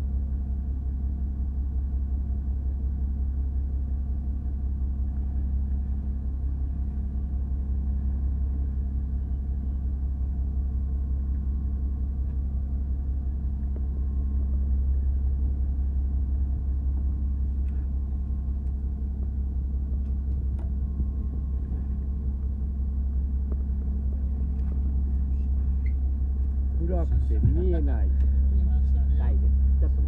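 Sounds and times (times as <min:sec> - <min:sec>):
boat engine droning: 0:00.0 - 0:30.0.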